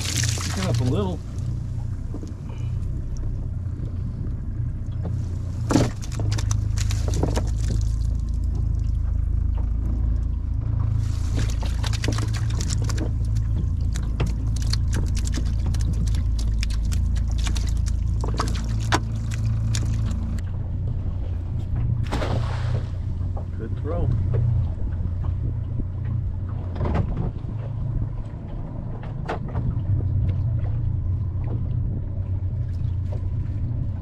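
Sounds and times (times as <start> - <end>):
water dripping: 0.0 - 1.5, 11.3 - 20.4
steady low rumble: 0.0 - 34.0
wet net clicking and crackling: 5.7 - 8.1, 11.4 - 20.4.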